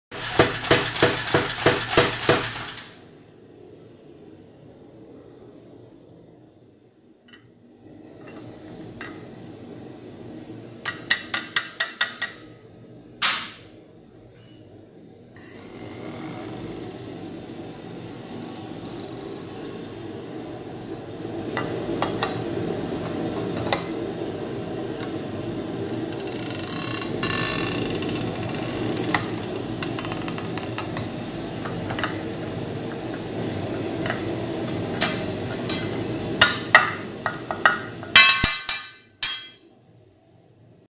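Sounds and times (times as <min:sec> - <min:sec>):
bending machine running: 0:00.1 - 0:03.0, 0:15.4 - 0:39.6.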